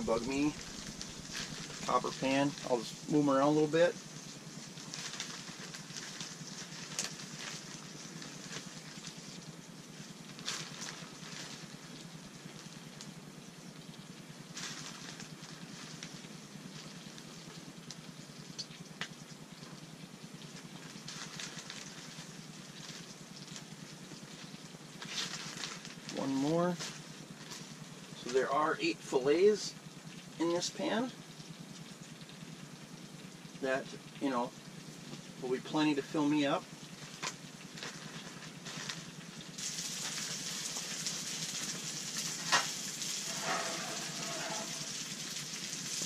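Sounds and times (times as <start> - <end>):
fish fillets sizzling in a pan: 0.0 - 26.2, 36.7 - 46.0.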